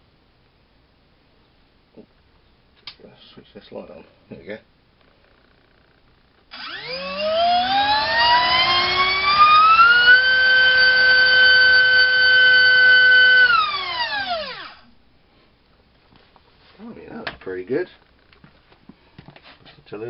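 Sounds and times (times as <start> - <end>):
drone motor whine: 6.5 - 14.9.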